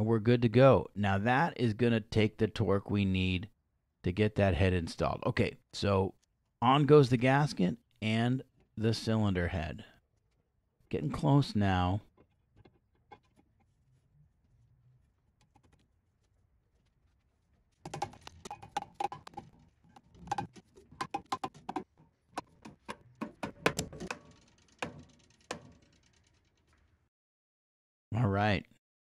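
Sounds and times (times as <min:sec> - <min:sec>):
metal clinking and tapping: 0:17.9 - 0:25.9.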